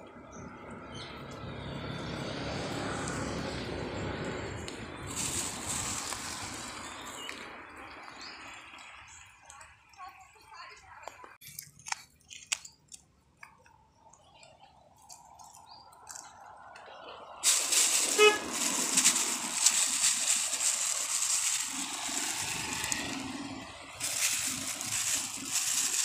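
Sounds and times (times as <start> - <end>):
heavy rain hissing: 17.4 - 26.0
horn toot: 17.9 - 19.0.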